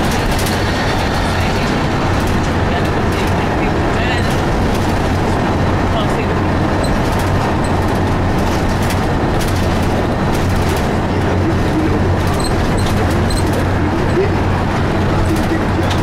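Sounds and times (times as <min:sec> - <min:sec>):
bus diesel engine hum: 0:00.0 - 0:16.0
road noise: 0:00.0 - 0:16.0
light rattles and clicks: 0:06.1 - 0:14.2.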